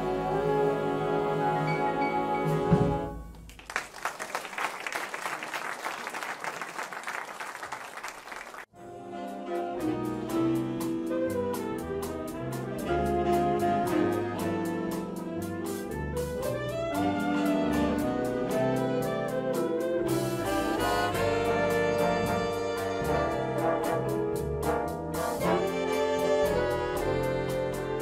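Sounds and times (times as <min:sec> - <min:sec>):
swinging big band music: 0:00.0 - 0:03.5, 0:08.6 - 0:28.0
audience applause: 0:03.4 - 0:08.7
big band ballad chord: 0:08.8 - 0:28.0.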